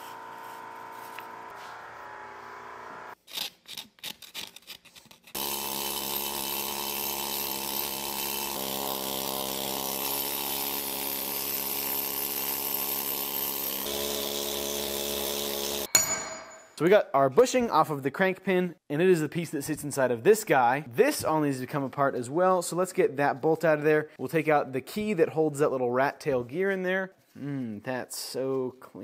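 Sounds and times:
needle scaler buzzing rattle: 0:05.4 - 0:15.9.

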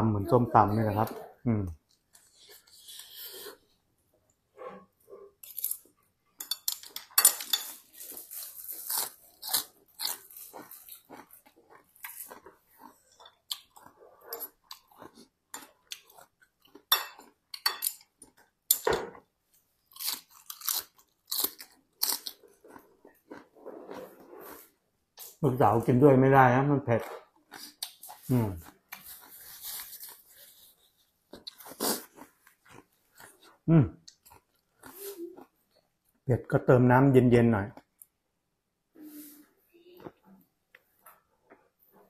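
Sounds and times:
person chewing crunchy food: 0:07.7 - 0:18.6, 0:19.8 - 0:24.8, 0:27.2 - 0:35.8.

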